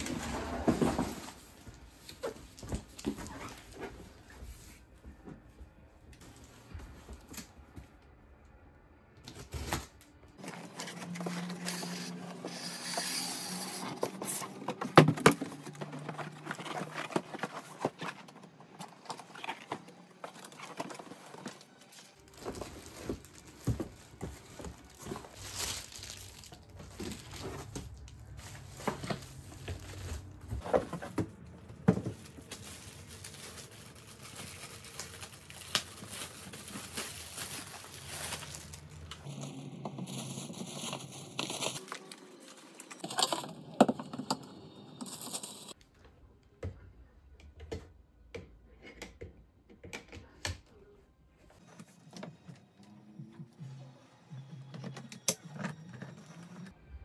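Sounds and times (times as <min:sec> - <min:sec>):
plastic wrap crinkling: 0:10.3 - 0:30.8, 0:31.4 - 0:43.5.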